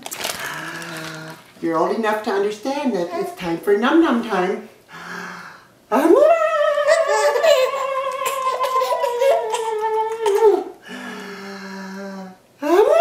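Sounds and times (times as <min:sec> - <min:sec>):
low steady hum: 0:00.0 - 0:13.0
baby laughing: 0:06.7 - 0:10.7.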